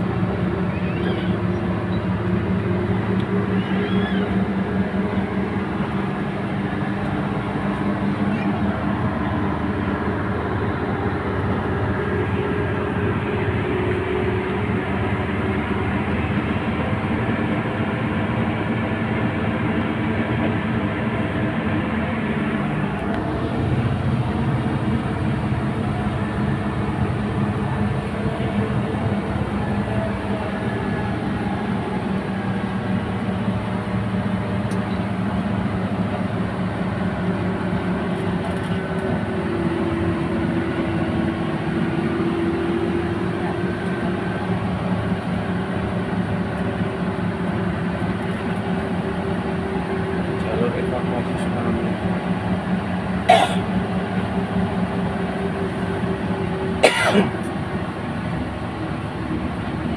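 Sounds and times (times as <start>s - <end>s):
bus engine drone: 0.0s - 59.9s
road noise: 0.0s - 59.9s.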